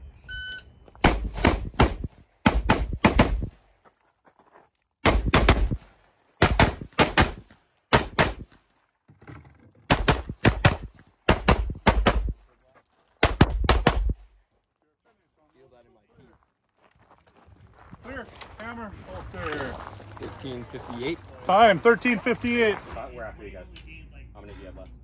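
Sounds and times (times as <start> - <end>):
shot timer beep: 0.3 - 0.7
rapid gunshots: 1.0 - 3.5, 5.0 - 5.8, 6.4 - 8.5, 9.9 - 12.3, 13.2 - 14.2.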